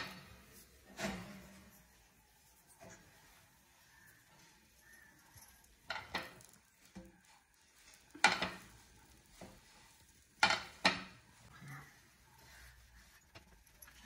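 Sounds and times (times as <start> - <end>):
utensils knocking against dishes: 5.8 - 6.6, 8.1 - 8.8, 10.4 - 11.3.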